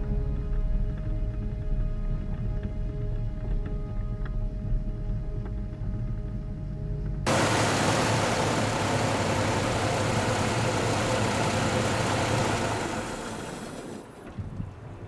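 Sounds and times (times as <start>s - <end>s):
car engine idling: 7.3s - 14.2s.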